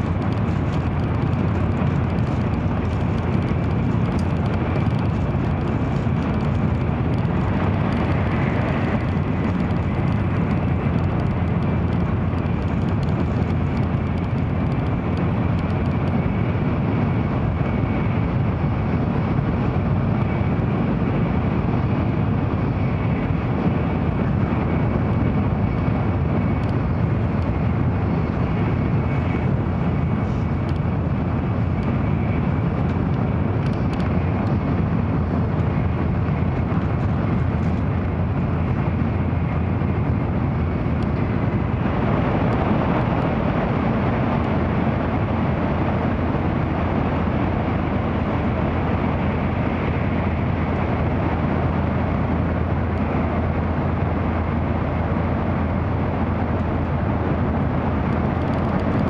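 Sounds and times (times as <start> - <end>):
air rushing along train: 0.0 - 59.0
train wheels rumbling on rail: 0.0 - 59.0.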